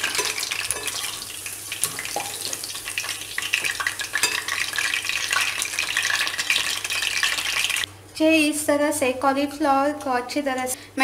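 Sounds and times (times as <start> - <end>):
food deep-frying in oil: 0.0 - 7.9.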